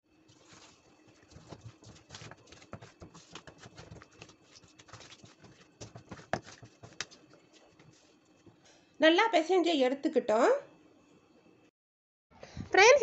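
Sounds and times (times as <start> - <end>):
hand kneading fish in wet coating: 0.2 - 8.2.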